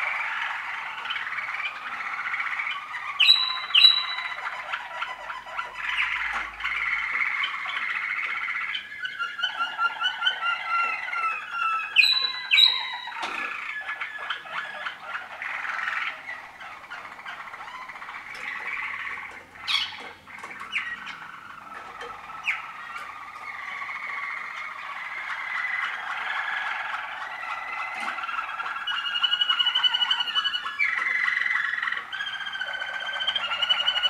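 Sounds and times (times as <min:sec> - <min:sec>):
canaries singing: 0:00.0 - 0:34.0.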